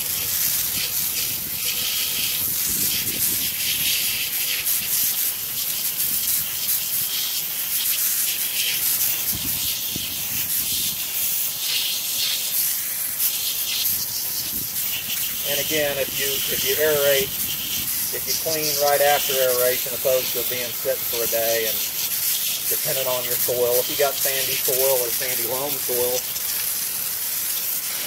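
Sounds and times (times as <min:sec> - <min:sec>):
hose spray nozzle hissing: 0:00.0 - 0:28.0.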